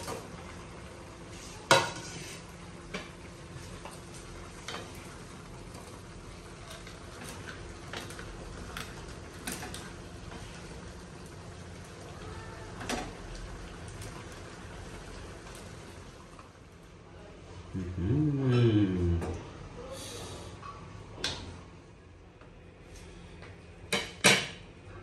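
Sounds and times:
faint sizzle: 0:00.0 - 0:25.0.

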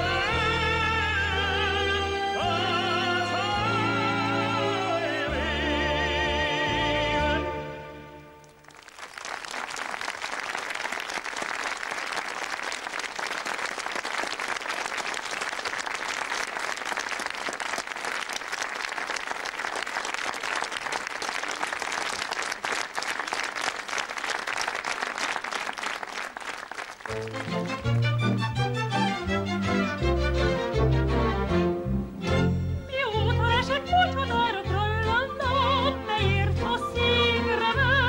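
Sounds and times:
music: 0:00.0 - 0:08.7, 0:27.0 - 0:38.0
audience applauding: 0:08.4 - 0:28.4.

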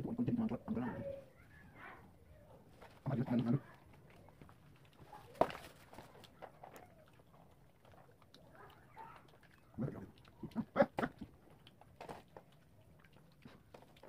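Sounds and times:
people eating: 0:00.0 - 0:14.0
short grunting voice noises: 0:09.8 - 0:11.2.

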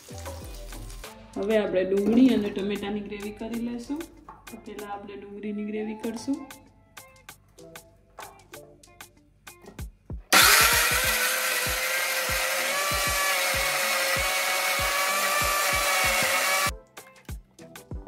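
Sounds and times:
background music with a beat: 0:00.0 - 0:04.9, 0:06.1 - 0:18.0
mixer grinder motor whining: 0:10.3 - 0:16.7.

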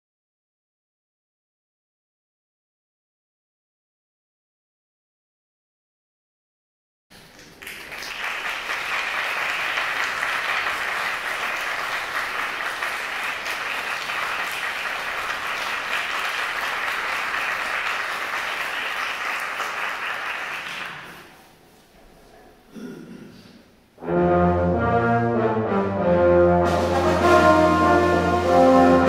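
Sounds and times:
audience applauding: 0:07.2 - 0:21.4.

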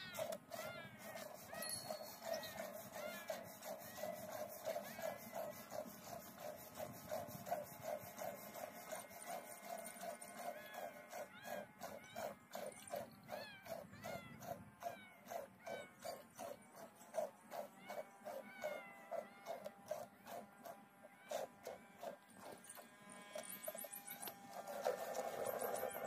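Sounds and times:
rhythmic pulsing: 0:00.0 - 0:26.0.

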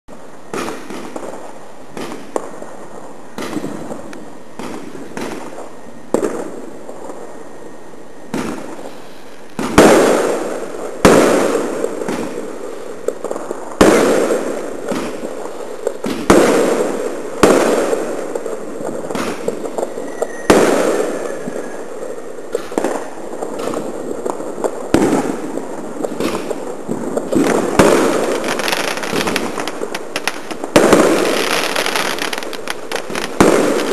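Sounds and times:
fireworks pops and crackle: 0:00.1 - 0:07.7, 0:08.3 - 0:33.9
fireworks bangs with echo: 0:00.1 - 0:33.9.

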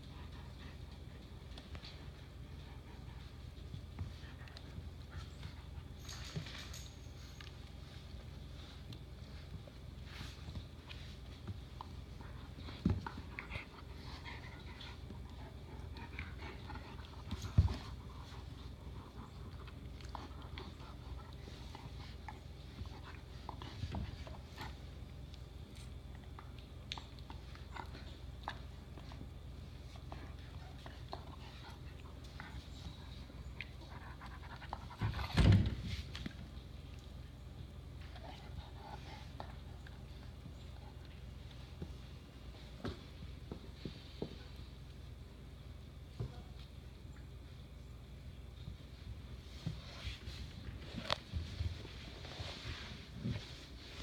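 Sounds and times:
dogs mouthing and scuffling: 0:00.0 - 0:45.2, 0:48.6 - 0:54.0
dog panting: 0:08.0 - 0:24.9.

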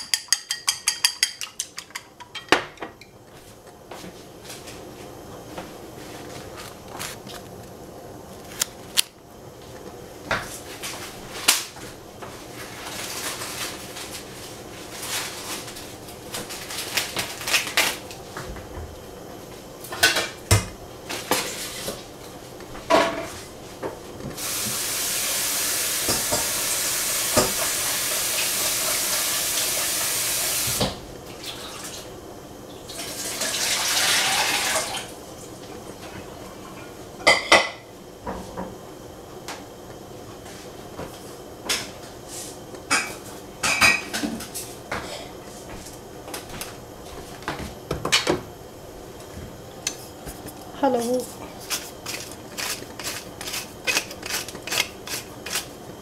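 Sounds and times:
dishes and utensils clinking: 0:00.0 - 0:03.1
water tap running: 0:24.4 - 0:32.0, 0:32.8 - 0:35.1.

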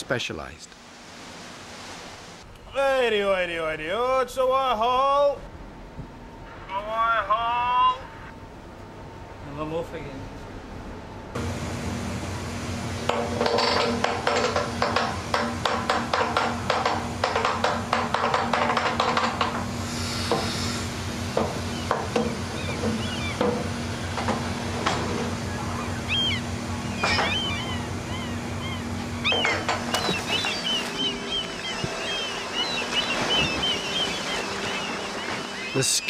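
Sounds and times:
low engine hum: 0:10.0 - 0:15.8, 0:19.5 - 0:35.8
seabirds chirping: 0:20.2 - 0:36.0.

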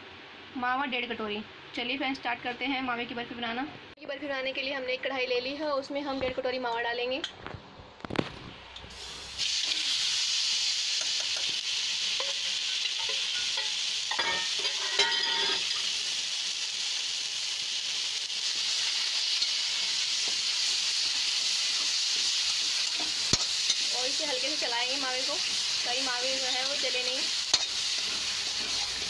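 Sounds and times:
food sizzling in a pan: 0:08.8 - 0:29.0
spatula scraping a pan: 0:12.2 - 0:15.8, 0:25.4 - 0:29.0.

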